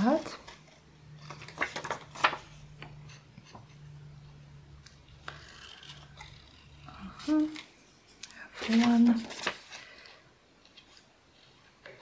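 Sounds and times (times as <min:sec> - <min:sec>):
scissors cutting paper card: 0:05.0 - 0:07.7.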